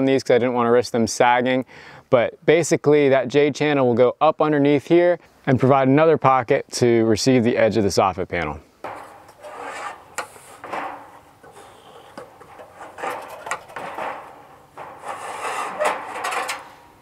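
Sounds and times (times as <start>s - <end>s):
ladders scraping and knocking: 8.8s - 17.0s.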